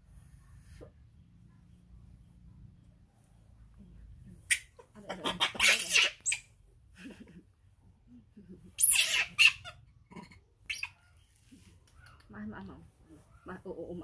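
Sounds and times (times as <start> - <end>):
baby monkey screeching cries: 4.5 - 6.5, 8.8 - 9.8, 10.6 - 11.2.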